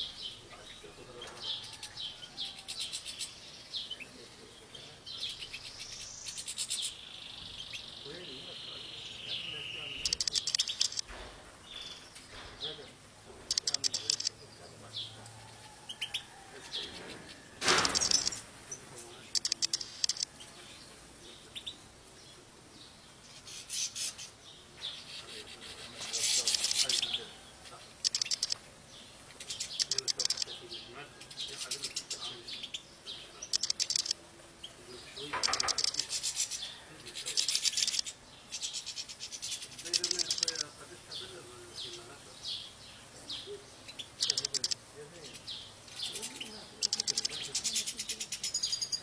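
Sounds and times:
finches twittering: 0:02.5 - 0:12.8, 0:13.4 - 0:15.3, 0:16.0 - 0:20.7, 0:28.0 - 0:49.0
rattling bird trills: 0:09.9 - 0:12.8, 0:13.4 - 0:14.4, 0:15.8 - 0:18.5, 0:19.2 - 0:20.3, 0:26.1 - 0:27.3, 0:28.0 - 0:28.6, 0:29.4 - 0:30.6, 0:33.5 - 0:34.2, 0:35.2 - 0:40.7, 0:44.2 - 0:44.8, 0:45.9 - 0:49.0.

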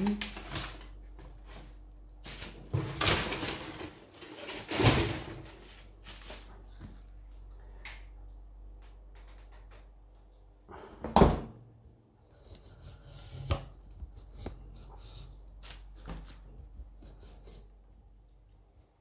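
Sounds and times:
small clicks and taps: 0:08.7 - 0:10.3.

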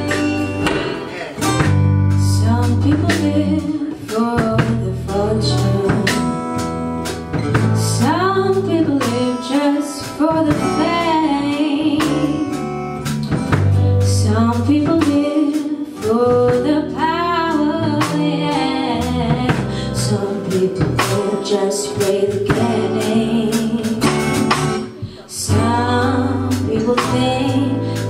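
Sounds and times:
woman singing a pop ballad: 0:00.0 - 0:00.9, 0:02.1 - 0:06.7, 0:07.6 - 0:12.8, 0:13.8 - 0:28.0
strummed acoustic guitars: 0:00.0 - 0:04.8, 0:17.5 - 0:28.0.

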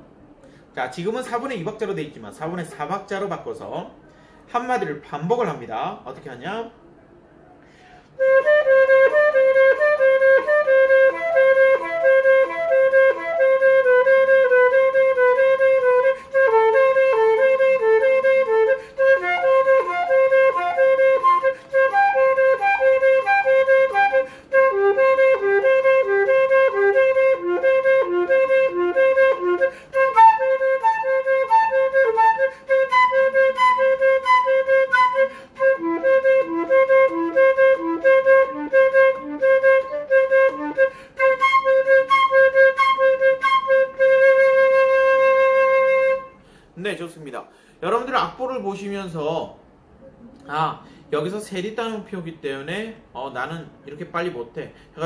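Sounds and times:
flute playing fast exercise: 0:08.2 - 0:46.4.

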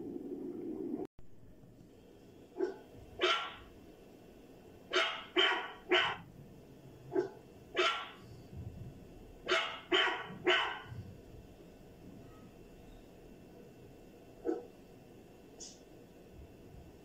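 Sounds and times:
dog barking: 0:02.6 - 0:03.6, 0:04.9 - 0:06.3, 0:07.1 - 0:08.2, 0:09.5 - 0:11.0, 0:14.4 - 0:14.7.

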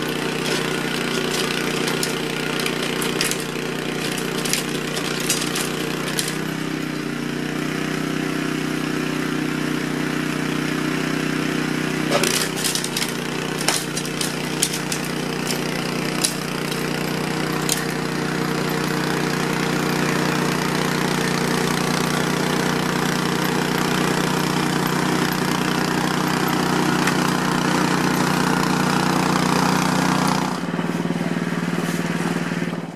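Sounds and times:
snow blower running: 0:00.0 - 0:32.9.

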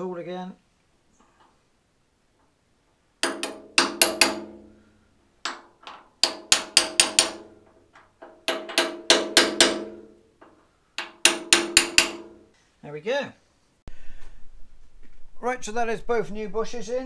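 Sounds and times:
hammer tapping on metal: 0:03.2 - 0:04.8, 0:05.4 - 0:12.5.

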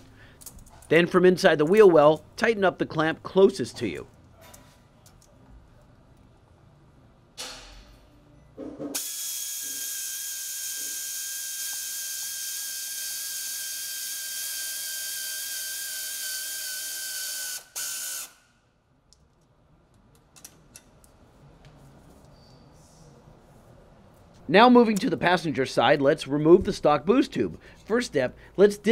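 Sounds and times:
cordless ratchet motor whine: 0:09.0 - 0:18.4.

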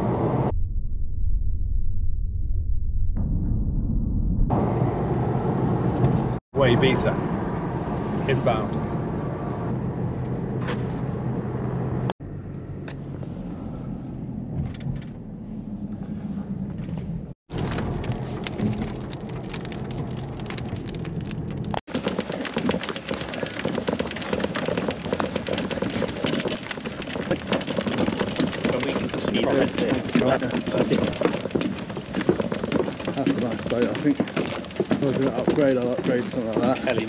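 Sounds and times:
road noise: 0:00.0 - 0:00.5, 0:04.5 - 0:37.0
car engine drone: 0:00.0 - 0:21.8
dense crackling noise: 0:16.7 - 0:37.0.

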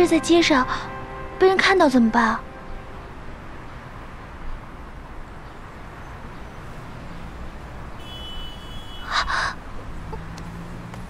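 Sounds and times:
thin high tone: 0:00.0 - 0:04.5
street traffic: 0:00.0 - 0:11.0.

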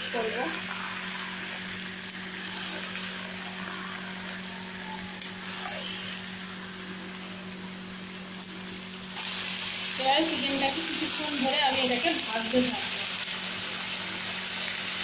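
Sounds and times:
food sizzling in hot oil: 0:00.0 - 0:15.0.

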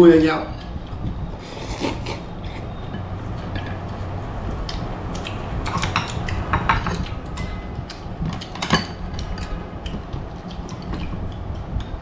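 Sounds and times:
steady low hum: 0:00.0 - 0:12.0
utensils clinking against ceramic bowl: 0:05.7 - 0:09.6.

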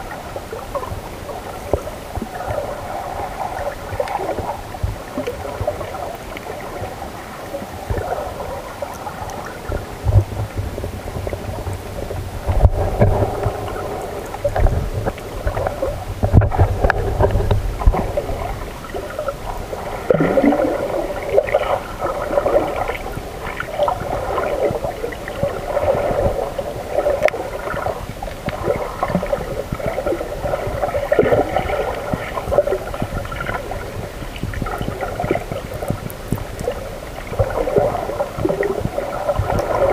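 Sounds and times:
underwater gurgling and sloshing: 0:00.0 - 0:39.9
low underwater thumps: 0:09.7 - 0:23.3, 0:27.6 - 0:39.9.

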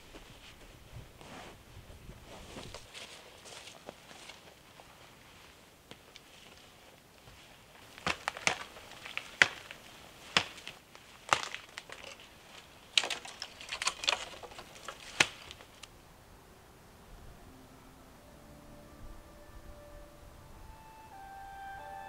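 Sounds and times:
dry wood snapping: 0:07.8 - 0:15.9.

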